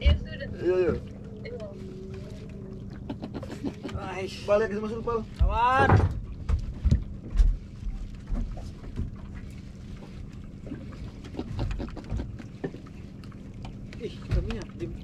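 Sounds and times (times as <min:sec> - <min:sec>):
steady low hum: 0:00.0 - 0:15.0
water around boat: 0:00.0 - 0:15.0
knocks on boat: 0:05.3 - 0:07.7, 0:14.2 - 0:14.7.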